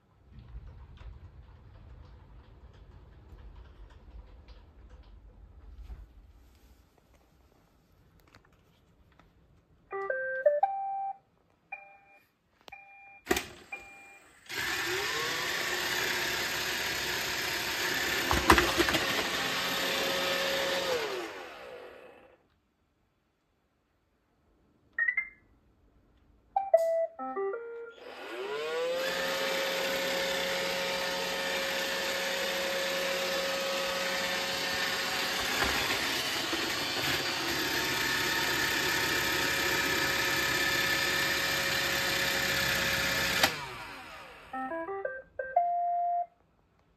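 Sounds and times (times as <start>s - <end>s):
vacuum motors whining: 13.5s - 22.4s, 27.9s - 44.6s
robot vacuum beeps: 25.0s - 25.4s, 44.6s - 46.3s.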